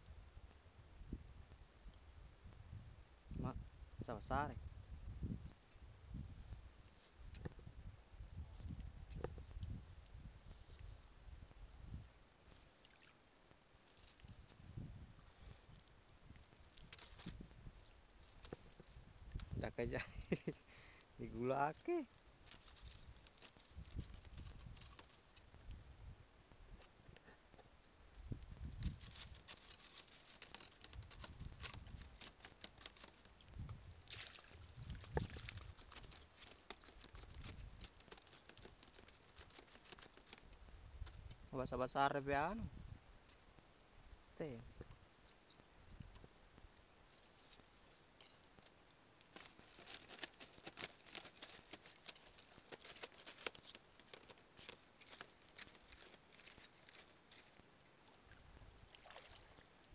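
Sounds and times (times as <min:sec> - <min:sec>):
small splashes of shallow water: 0:12.5 - 0:14.5, 0:34.0 - 0:37.5, 0:55.0 - 0:59.9
wading through shallow water: 0:29.0 - 0:40.4, 0:49.3 - 0:59.9.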